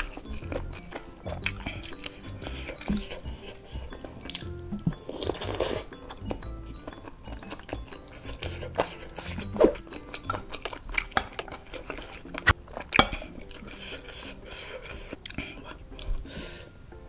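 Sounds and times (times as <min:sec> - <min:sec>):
chewing: 0:00.0 - 0:16.7
cutlery clinking on ceramic bowl: 0:09.6 - 0:13.9.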